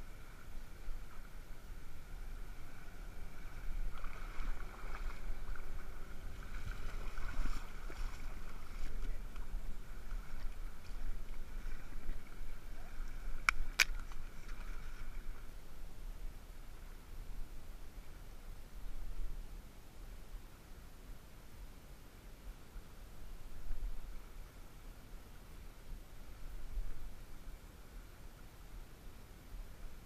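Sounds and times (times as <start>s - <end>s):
water lapping at shoreline: 0.0s - 16.0s.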